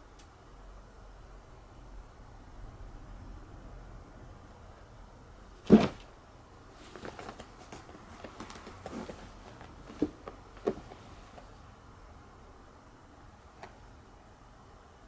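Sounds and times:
cat landing thump: 5.6s - 6.1s
cat pawing straw mat: 6.7s - 11.6s.

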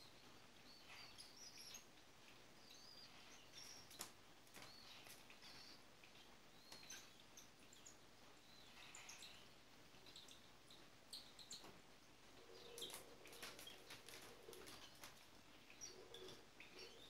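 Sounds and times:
bird chicks cheeping: 0.0s - 17.0s.

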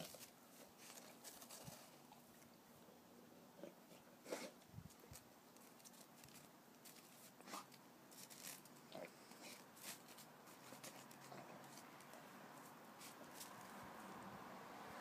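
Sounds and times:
dog crunching in snow: 4.3s - 8.7s.

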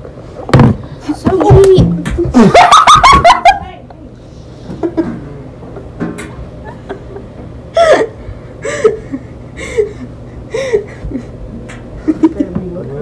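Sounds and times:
girl laughing: 2.2s - 3.9s, 6.6s - 11.4s, 12.0s - 12.5s.

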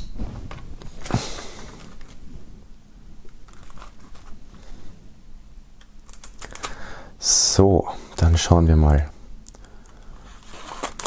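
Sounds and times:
plastic film crinkling: 3.4s - 4.6s, 10.2s - 11.0s
knife slitting plastic wrap: 10.4s - 11.0s.

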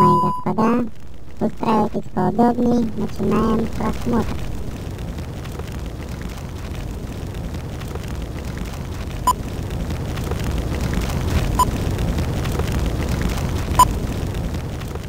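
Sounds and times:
short high beep: 0.0s - 0.5s
low rumble and hiss: 0.0s - 15.0s.

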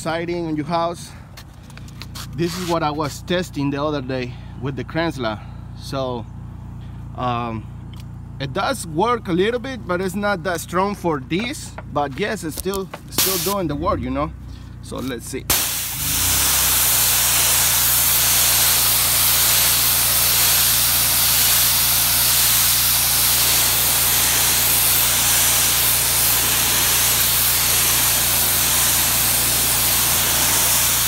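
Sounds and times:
pressure washer spray hissing: 2.1s - 2.8s, 13.0s - 13.7s, 15.5s - 31.0s.

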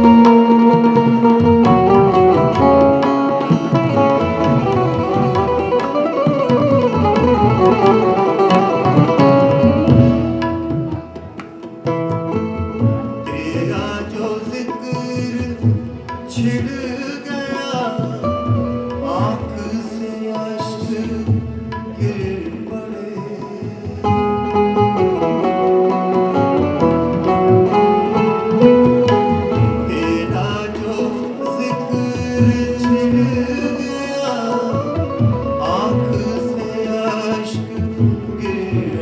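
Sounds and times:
harmonium melody: 0.0s - 39.0s
tabla strokes: 0.0s - 39.0s.

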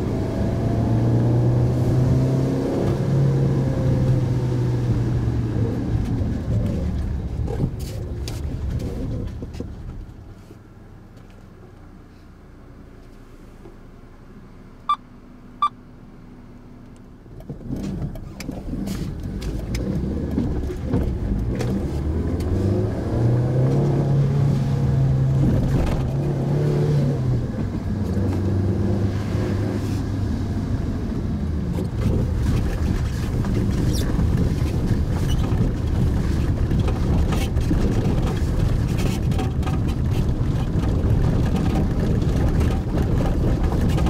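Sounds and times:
road noise: 0.0s - 44.0s
short beeps: 14.9s - 15.8s.

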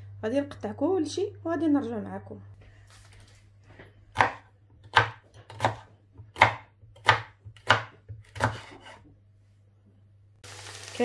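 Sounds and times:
knife chopping on wooden board: 4.1s - 9.0s.

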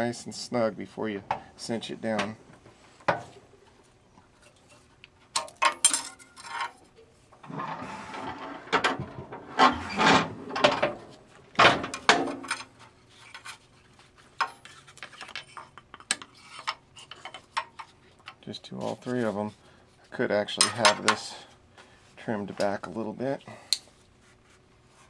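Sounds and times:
metal clanks and scraping: 4.4s - 13.8s, 20.5s - 21.4s.

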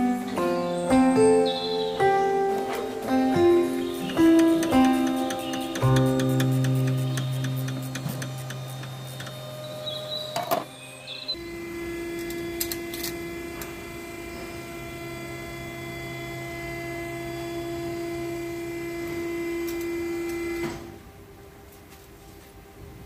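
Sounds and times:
small electric motor whining: 3.3s - 20.9s.

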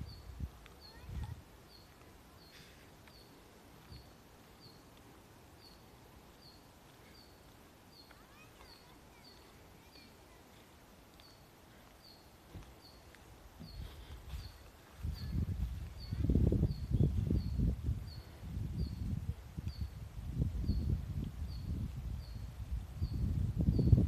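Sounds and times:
soft bird twitters: 0.0s - 5.0s.

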